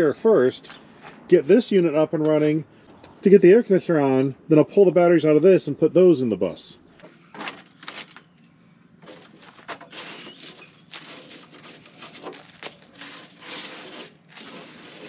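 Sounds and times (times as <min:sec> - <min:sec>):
scraping in metal tray: 0:09.0 - 0:15.0.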